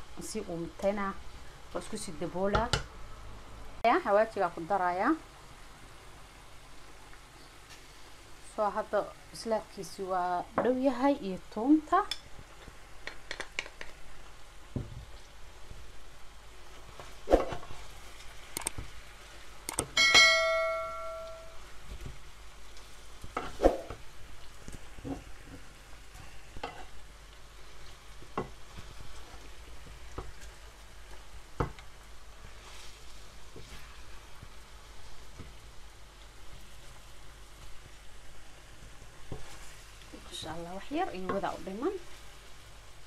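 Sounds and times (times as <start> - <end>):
chicken sizzling in oil: 4.0 - 43.0
short metallic ring: 20.0 - 21.6.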